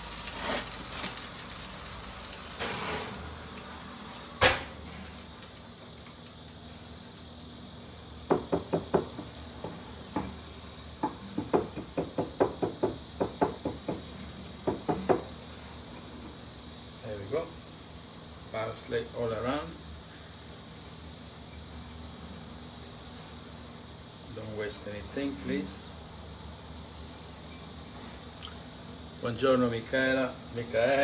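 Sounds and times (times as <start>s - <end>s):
loud knock: 8.3s - 9.3s.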